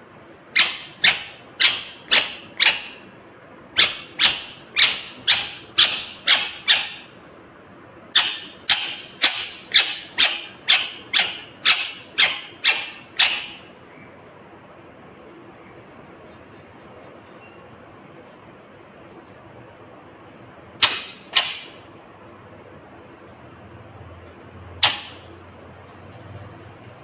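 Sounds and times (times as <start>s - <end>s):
parakeet screeching: 0.5s - 3.0s, 3.8s - 7.2s, 8.1s - 13.7s, 24.8s - 25.3s.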